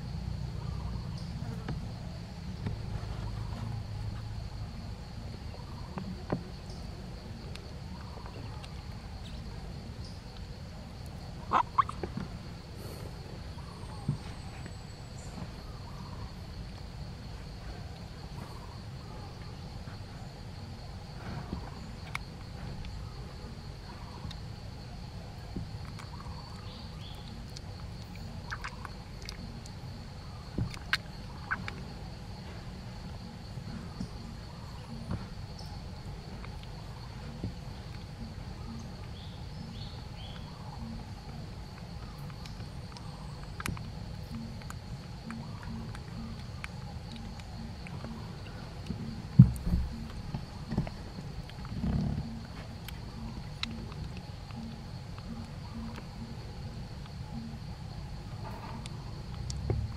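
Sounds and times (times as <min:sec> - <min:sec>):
background hum: 0:00.0 - 0:59.9
soft mouth clicks: 0:52.8 - 0:56.1.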